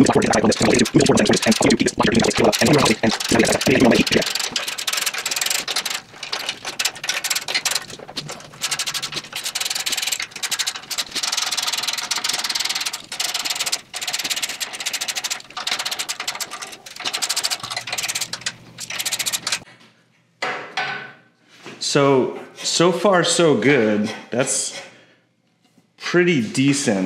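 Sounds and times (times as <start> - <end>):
socket ratchet clicking: 0.0 - 19.6.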